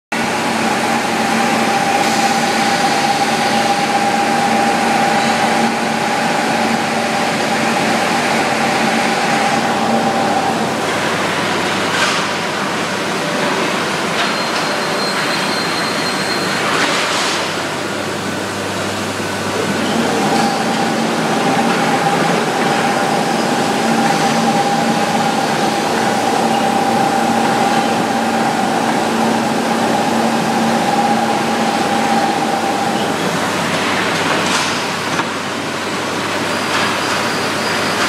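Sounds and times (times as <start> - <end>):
steady two-tone hum: 0.2 - 14.9, 17.4 - 38.0.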